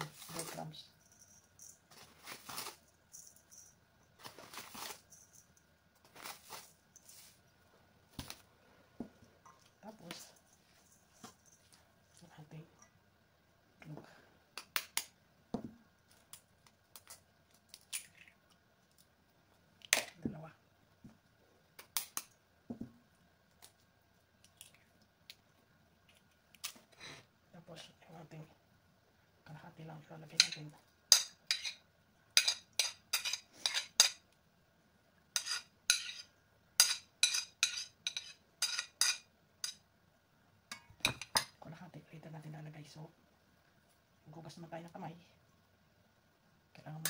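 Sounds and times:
egg tapped and cracked on bowl: 14.6s - 15.7s
metal spoon clinking on ceramic plate: 32.4s - 34.2s, 35.4s - 39.8s.

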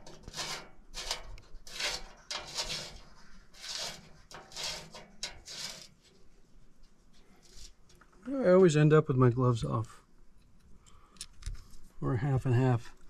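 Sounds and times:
bolt scraping on sheet metal: 0.0s - 6.1s.

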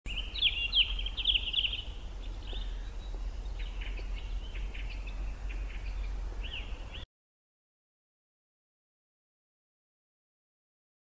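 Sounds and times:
low steady hum: 0.1s - 7.0s
songbird chirping and trilling: 0.1s - 7.1s.

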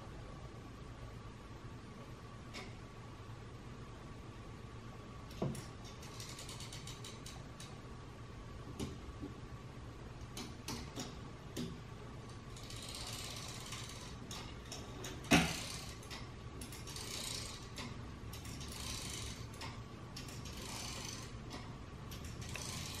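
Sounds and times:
small mechanical clicks: 5.3s - 7.8s, 12.3s - 23.0s
gear mechanism whirring: 5.9s - 7.7s, 12.5s - 23.0s.

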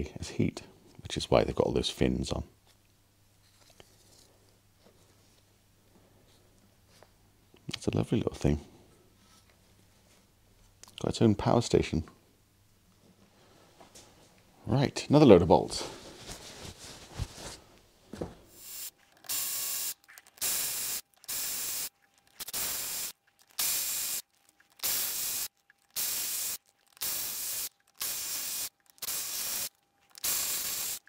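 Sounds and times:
electric ratchet whirring: 18.7s - 24.2s, 24.8s - 31.0s.

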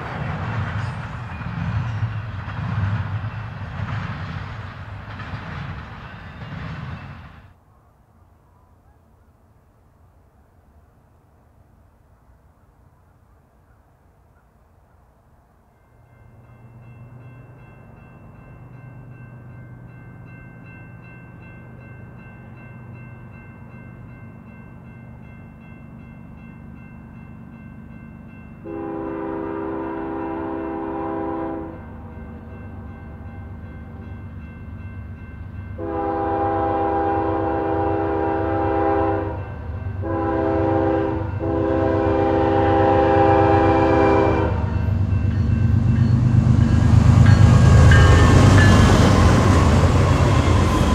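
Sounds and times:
locomotive air horn: 28.6s - 31.8s, 35.8s - 44.8s
locomotive engine rumble: 39.6s - 50.9s.

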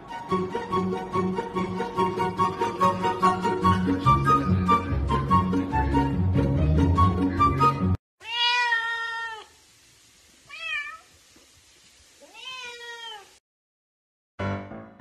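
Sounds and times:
music: 0.0s - 8.0s, 14.4s - 15.0s
cat meowing: 8.2s - 9.5s, 10.5s - 11.1s, 12.2s - 13.4s.

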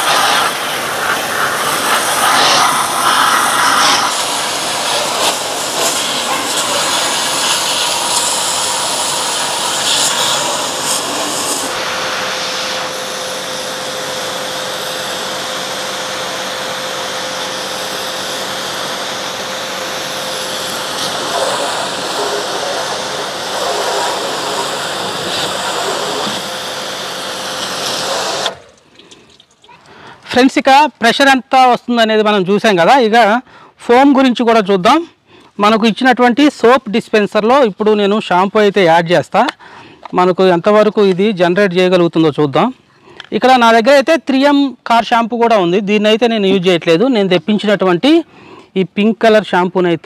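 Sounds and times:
pressure washer spraying: 0.0s - 28.8s.

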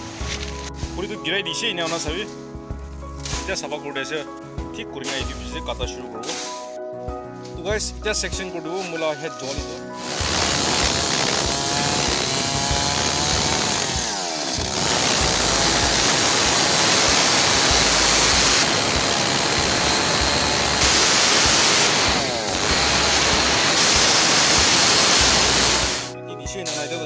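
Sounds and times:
chainsaw cutting tree trunk: 10.0s - 26.1s.

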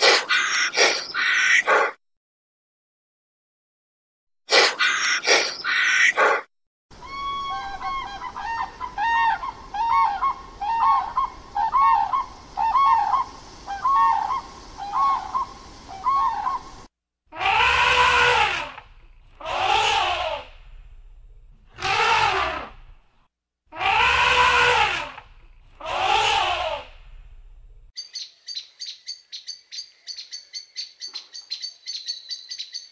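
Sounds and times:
harsh animal calls: 0.0s - 2.0s, 4.5s - 16.6s, 17.3s - 20.7s, 21.7s - 23.0s, 23.7s - 27.2s
crane bugling calls: 7.0s - 16.8s, 17.4s - 18.8s, 21.8s - 22.7s, 23.7s - 25.2s, 25.8s - 27.0s.

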